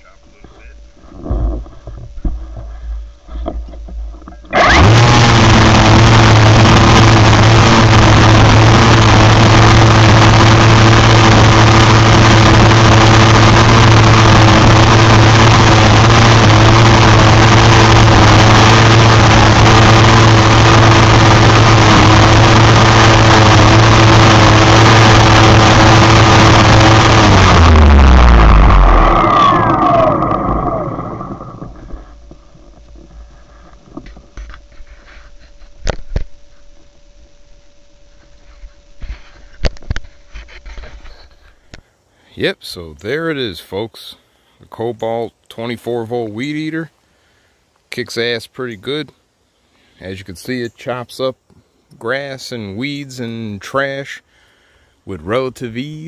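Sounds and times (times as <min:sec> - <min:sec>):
string trimmer humming: 0:00.0 - 0:41.9.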